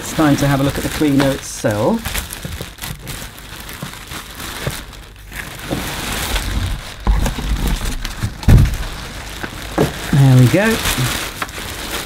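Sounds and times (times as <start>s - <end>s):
packaging rustling and crinkling: 0.0s - 12.0s
dull thumps: 2.0s - 10.2s.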